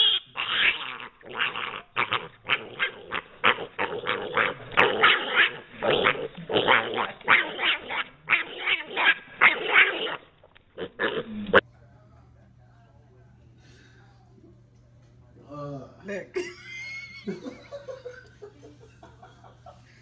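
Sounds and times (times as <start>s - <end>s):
piglet squealing grunts: 0.0s - 11.6s.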